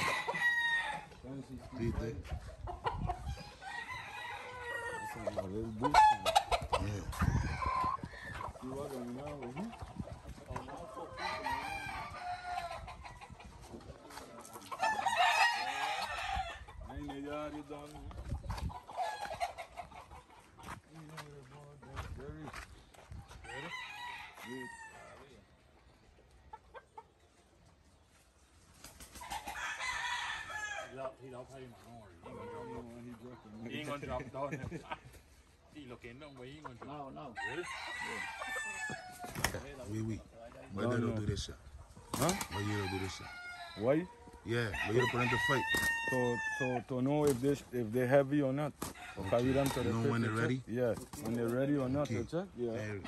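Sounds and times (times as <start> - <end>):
rooster crowing: 0.0 - 1.2, 3.4 - 5.3, 11.1 - 12.8, 14.8 - 16.7, 23.4 - 25.2, 29.4 - 30.9, 37.4 - 39.3, 42.3 - 44.0, 44.7 - 46.8, 48.9 - 50.4
roosters crowing: 0.0 - 17.7, 18.5 - 20.8, 23.3 - 25.6, 28.9 - 31.2, 36.8 - 40.2, 42.0 - 51.9
chickens clucking: 0.0 - 53.0.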